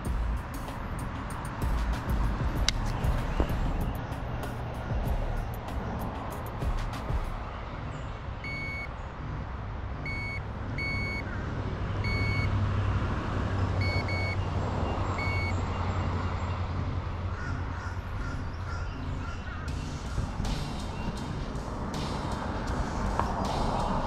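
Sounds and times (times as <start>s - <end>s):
steady low rumble: 0.0s - 8.0s, 18.0s - 24.0s
short high electronic beeps: 15.2s - 15.5s.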